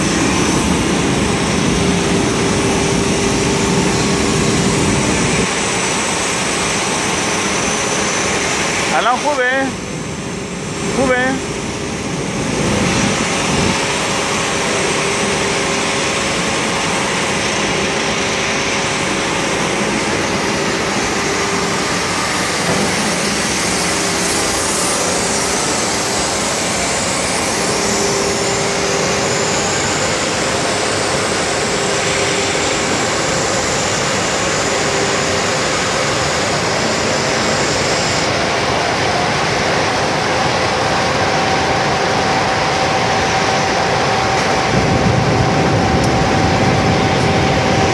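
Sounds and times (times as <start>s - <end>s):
faint humming tones: 0.0s - 47.9s.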